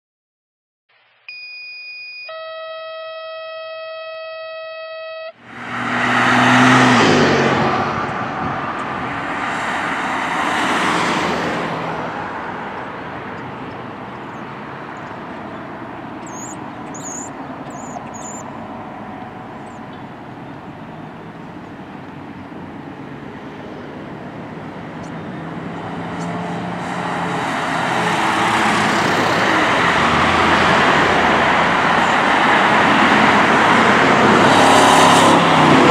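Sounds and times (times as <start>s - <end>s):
road traffic: 2.3s - 35.9s
loud vehicle passing: 5.4s - 35.9s.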